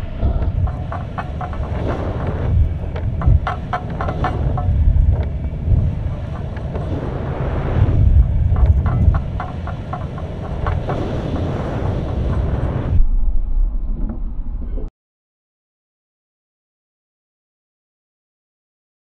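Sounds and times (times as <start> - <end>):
wind buffeting microphone: 0.0 - 13.8.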